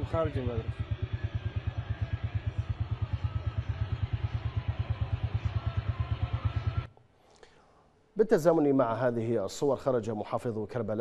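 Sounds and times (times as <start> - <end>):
engine running with low thudding: 0.0 - 6.9.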